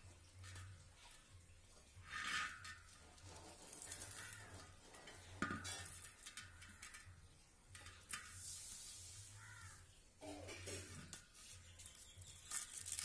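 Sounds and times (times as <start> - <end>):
hands scraping rusty wheel: 2.0 - 7.1.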